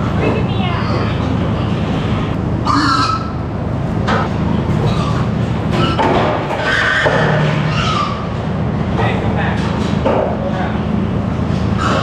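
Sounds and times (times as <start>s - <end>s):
steady low hum: 0.0s - 12.0s
pigs squealing: 2.6s - 3.5s, 4.7s - 8.5s, 11.6s - 12.0s.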